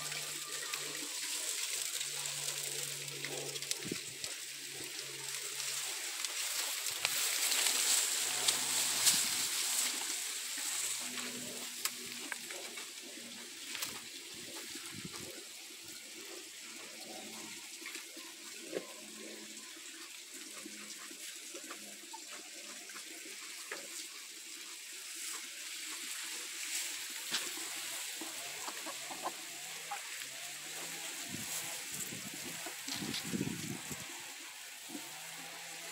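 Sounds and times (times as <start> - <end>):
steady hiss: 0.0 - 17.0
chickens clucking softly: 28.3 - 30.3.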